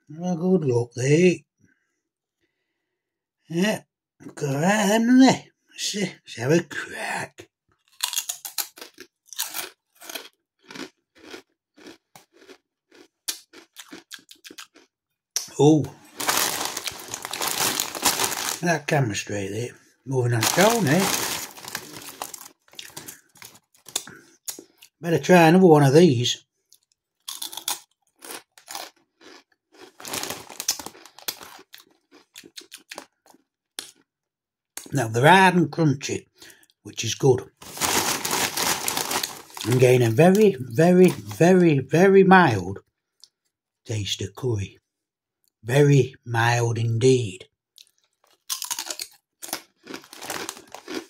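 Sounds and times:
crisp crunching: 0:07.8 - 0:14.9, 0:15.8 - 0:19.3, 0:20.2 - 0:25.0, 0:27.3 - 0:33.4, 0:37.6 - 0:41.5, 0:47.8 - 0:51.0.

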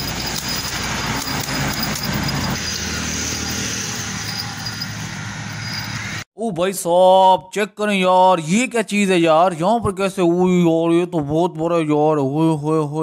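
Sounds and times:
road traffic noise: 0:00.0 - 0:06.3.

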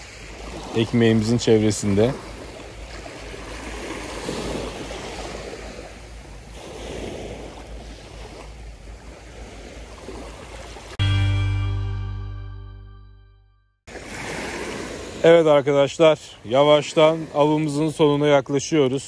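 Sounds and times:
sea water washing against shore: 0:00.0 - 0:11.0, 0:13.9 - 0:19.0
loud sustained musical tone: 0:11.0 - 0:13.7.

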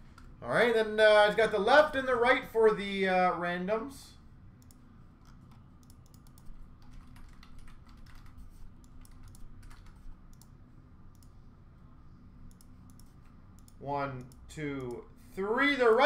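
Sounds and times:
typing on a keyboard: 0:05.8 - 0:10.5.

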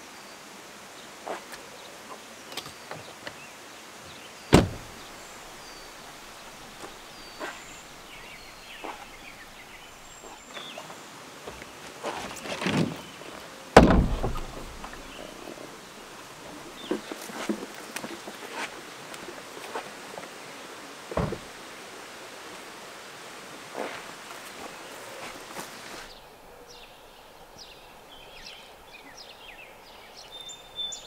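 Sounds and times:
car door shutting: 0:04.5 - 0:05.1, 0:13.8 - 0:15.1, 0:21.2 - 0:21.5
light knocks and clunks: 0:04.5 - 0:05.1, 0:13.8 - 0:15.6, 0:21.1 - 0:21.5
rustling: 0:04.5 - 0:20.3
water jug thud on wooden table: 0:13.8 - 0:15.0.

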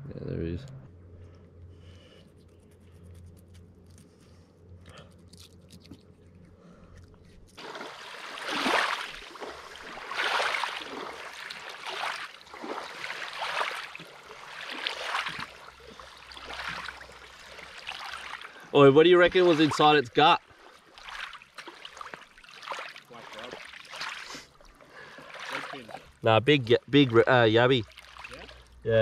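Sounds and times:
faint low hum: 0:00.0 - 0:07.6.

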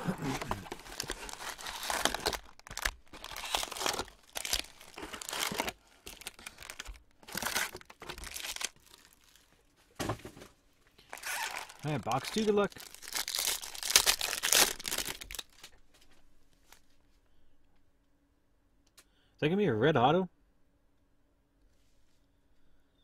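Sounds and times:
plastic and foil packs crinkling: 0:00.0 - 0:09.7, 0:11.0 - 0:16.9.

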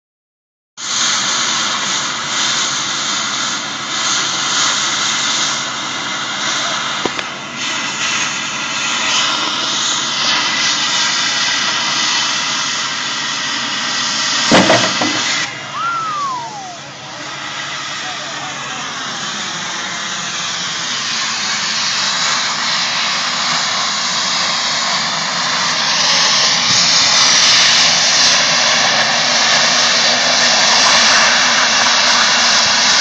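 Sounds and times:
cutting torch hissing: 0:00.8 - 0:33.0
sharp pops: 0:07.0 - 0:07.3.

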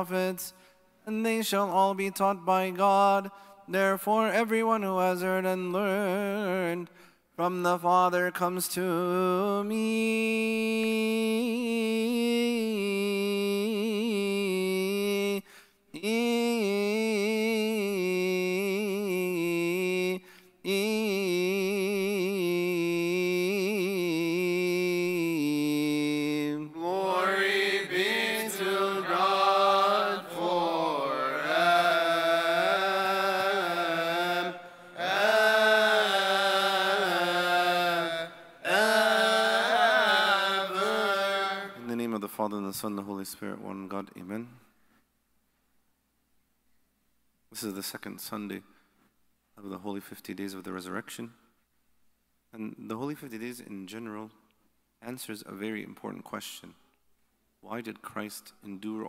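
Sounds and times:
man chanting with vibrato: 0:16.0 - 0:42.4.

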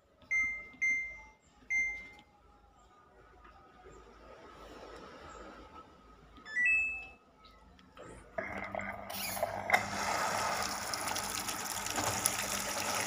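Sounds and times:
washing machine beep: 0:00.3 - 0:02.2, 0:06.4 - 0:07.2
water gushing into drum: 0:08.4 - 0:13.0.

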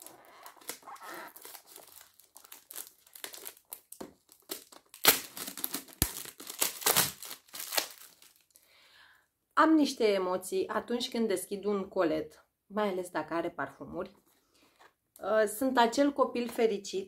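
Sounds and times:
packaging crinkling and tearing: 0:00.0 - 0:08.6.

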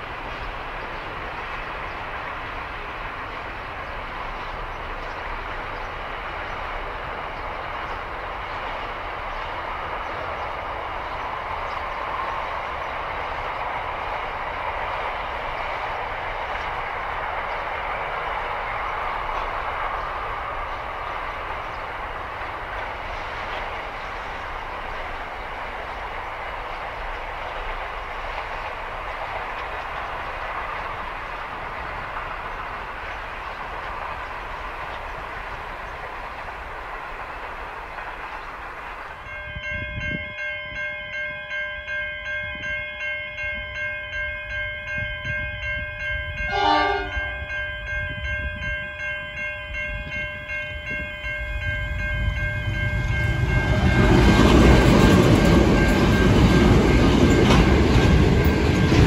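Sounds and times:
crossing warning bells: 0:00.0 - 0:59.0
diesel locomotives rumbling: 0:00.0 - 0:59.0
wheels rumbling on rail: 0:00.0 - 0:59.0
locomotive horn: 0:46.5 - 0:47.4.

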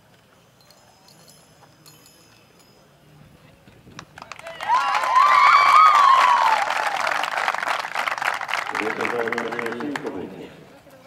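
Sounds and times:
crowd applauding: 0:04.2 - 0:10.4
high wavering cheers: 0:04.4 - 0:07.4.

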